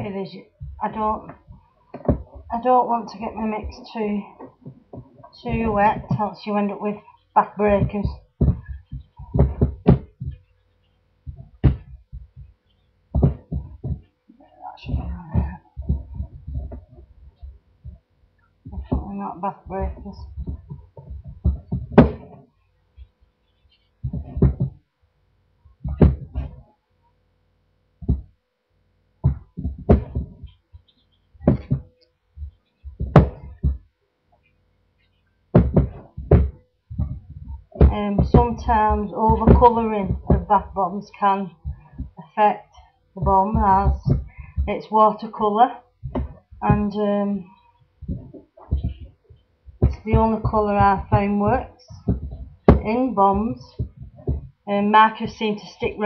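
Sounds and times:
dull thumps and knocks: 0.0 - 6.4, 7.4 - 10.5, 11.2 - 14.2, 14.8 - 23.1, 23.7 - 24.9, 25.8 - 26.7, 28.0 - 28.4, 29.2 - 33.9, 35.5 - 47.4, 48.0 - 56.0
soft thuds and scrunching rustles: 7.6 - 10.5, 11.2 - 14.1, 14.8 - 24.8, 25.8 - 26.7, 29.2 - 33.9, 35.0 - 42.2, 43.2 - 45.4, 46.0 - 47.2, 47.8 - 56.0.

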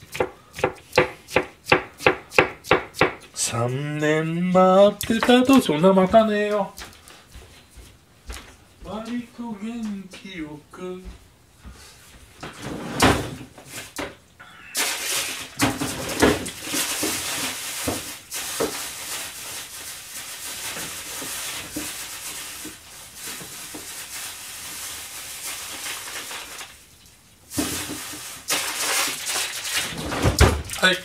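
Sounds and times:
rustling and clatter: 27.5 - 30.7.

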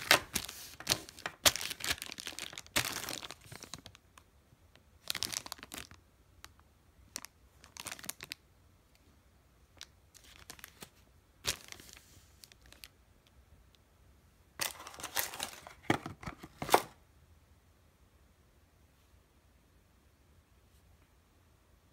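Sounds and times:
plastic bags crinkling: 0.0 - 4.0, 5.0 - 6.0, 7.1 - 8.4, 10.1 - 12.9, 14.6 - 16.9.

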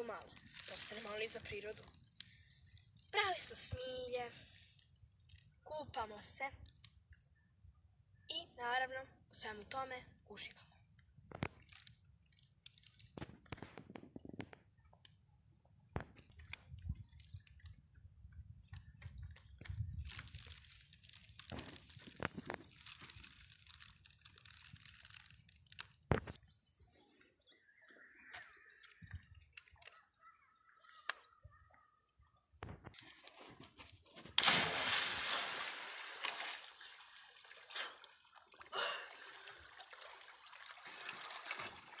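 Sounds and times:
dry stems rustling and crackling: 0.0 - 5.5, 11.3 - 14.5, 18.6 - 26.6
water sloshing and lapping: 0.0 - 5.5, 32.6 - 42.0
sharp water splashes: 34.4 - 42.0.

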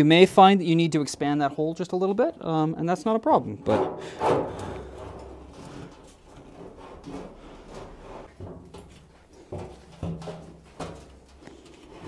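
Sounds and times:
metal pipe knocking and scraping: 3.6 - 11.4.

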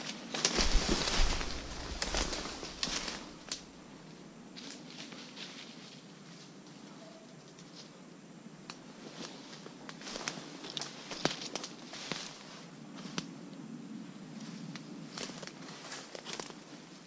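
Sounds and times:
twigs snapping: 0.0 - 3.7, 9.8 - 12.4
rustling of brush and leaves: 0.0 - 17.0.

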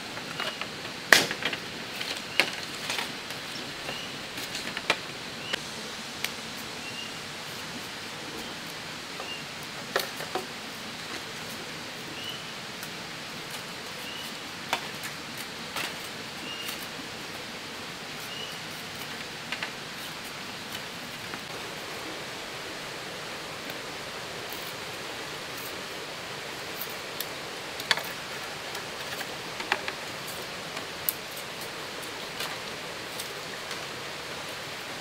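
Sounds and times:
forest background hiss: 0.0 - 35.0
blade splitting bamboo cracks: 1.1 - 1.6
bird chirping: 12.2 - 12.5, 16.4 - 16.8, 18.2 - 18.6.

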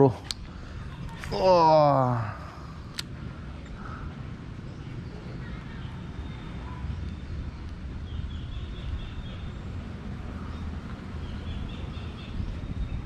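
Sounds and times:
wind rumble on microphone: 2.7 - 13.0
bird chirping: 4.6 - 13.0.

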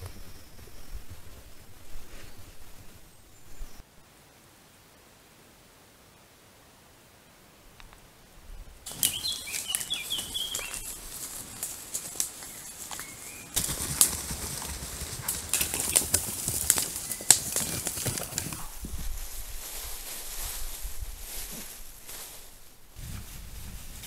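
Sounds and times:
bears walking through undergrowth: 8.8 - 24.0
small bird chirping: 8.9 - 13.6.

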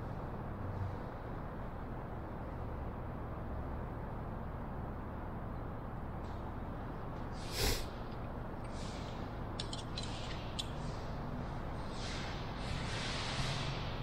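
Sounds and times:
steady low hum: 0.0 - 14.0
short breathy hiss: 7.4 - 8.0.

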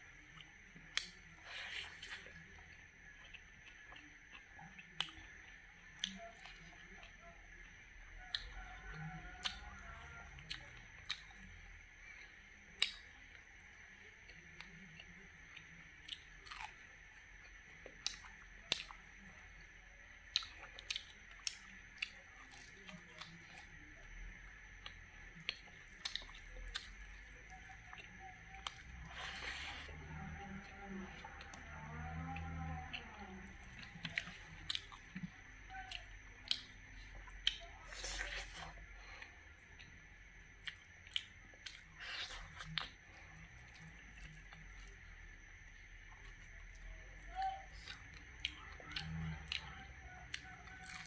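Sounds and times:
close chewing with crunches: 0.0 - 51.0
mouth clicks and crunches: 24.8 - 29.9, 32.2 - 40.0, 40.6 - 44.9, 47.7 - 51.0.

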